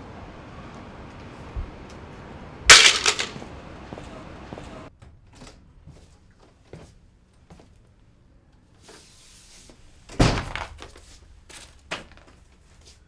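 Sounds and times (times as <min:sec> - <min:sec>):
steady background hum: 0:00.0 - 0:05.2
clatter of sharp hits: 0:02.7 - 0:03.4
loud crack: 0:02.7 - 0:03.4.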